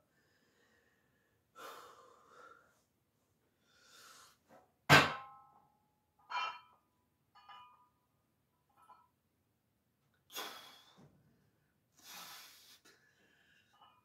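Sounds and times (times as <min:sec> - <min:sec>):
sharp breaths: 0:10.3 - 0:11.2, 0:11.9 - 0:14.0.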